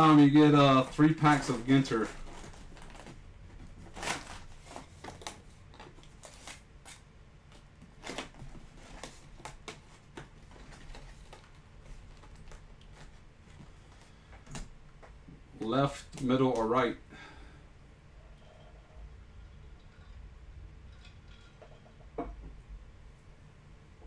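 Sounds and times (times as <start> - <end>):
cardboard rustling and clicking: 0.9 - 6.6.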